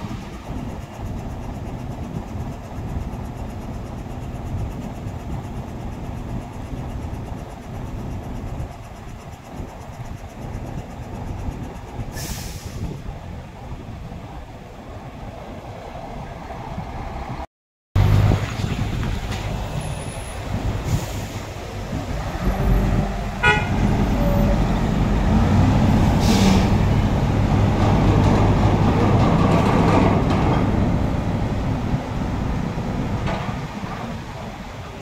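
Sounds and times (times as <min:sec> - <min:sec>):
diesel truck engine running: 0:00.0 - 0:14.5, 0:18.0 - 0:35.0
air hiss: 0:11.5 - 0:13.0, 0:26.1 - 0:26.8.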